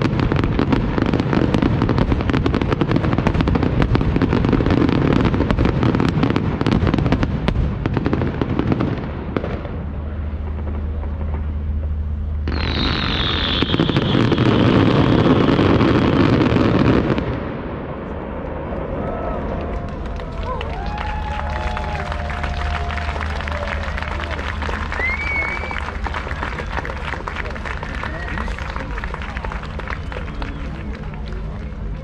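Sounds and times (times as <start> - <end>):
firework bangs and crackling: 0.0 - 32.0
hissing rush with falling whistle: 12.5 - 14.5, 24.9 - 25.9.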